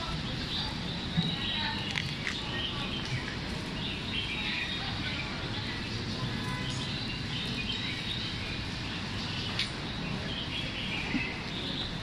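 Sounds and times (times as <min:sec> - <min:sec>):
low background noise: 0:00.0 - 0:12.0
small birds chirping: 0:00.0 - 0:12.0.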